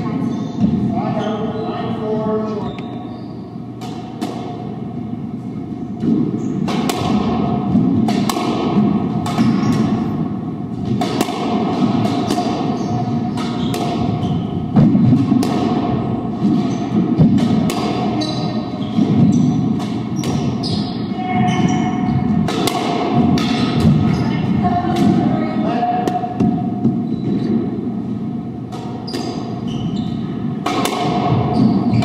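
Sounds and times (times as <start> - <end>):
shoe squeaks: 2.5 - 3.7, 6.4 - 6.6, 12.8 - 14.6, 18.2 - 19.6, 20.2 - 22.2, 24.1 - 24.4, 27.0 - 27.5, 29.0 - 30.3, 31.5 - 32.0
squash ball knocks: 6.0 - 18.2, 21.5 - 24.2, 30.6 - 32.0.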